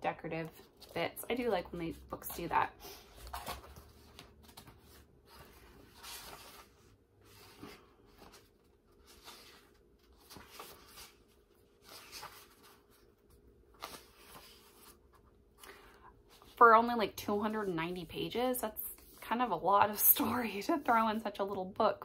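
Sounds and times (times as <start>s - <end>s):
book pages turning: 2.1s - 16.6s.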